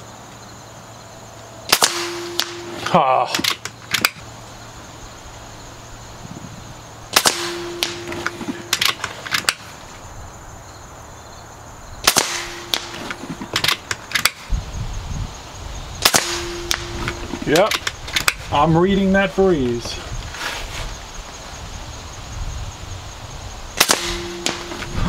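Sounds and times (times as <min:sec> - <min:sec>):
air rifle shots: 0:01.7 - 0:04.3, 0:07.1 - 0:09.8, 0:12.0 - 0:14.5, 0:16.0 - 0:18.5, 0:23.8 - 0:25.0.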